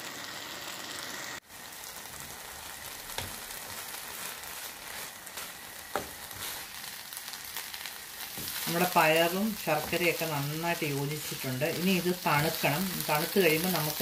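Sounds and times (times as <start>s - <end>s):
sweet mixture sizzling in a pan: 0.0s - 14.0s.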